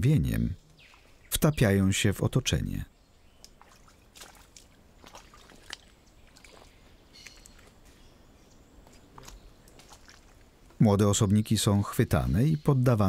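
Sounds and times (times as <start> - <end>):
water sloshing: 3.2 - 10.8
small clicks and splashes: 3.3 - 8.0, 8.8 - 10.8.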